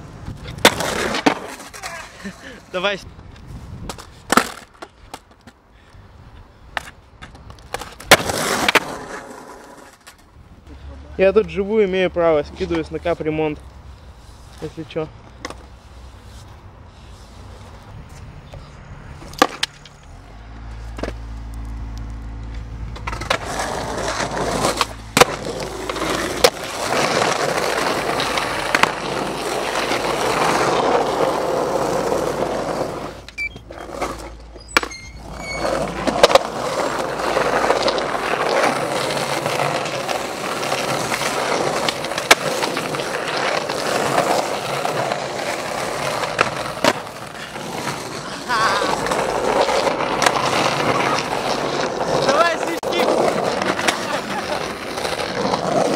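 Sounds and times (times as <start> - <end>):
skateboard wheels rolling on pavement: 0.0 - 55.9
skateboard clacking on ground: 0.4 - 2.2, 3.8 - 5.6, 6.7 - 10.3, 18.5 - 20.1, 22.5 - 55.9.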